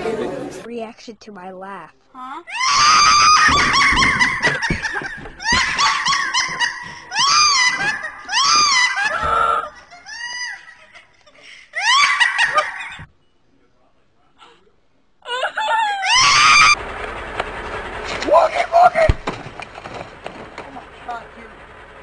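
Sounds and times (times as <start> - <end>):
outdoor noise: 0.0 - 22.0
high-pitched shrieks: 2.5 - 4.6, 5.4 - 10.6, 16.0 - 16.8
laughter: 3.5 - 13.1.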